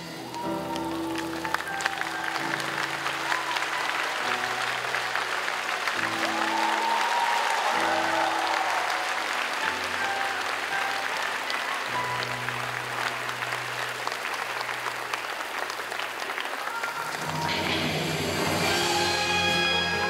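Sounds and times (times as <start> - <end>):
audience applauding: 0.0 - 20.0
music with long held notes: 17.2 - 20.0.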